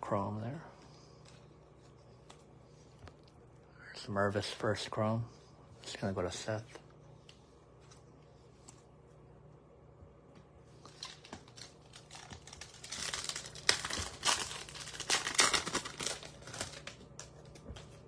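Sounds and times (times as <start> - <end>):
plastic wrapper crinkling: 10.8 - 18.0.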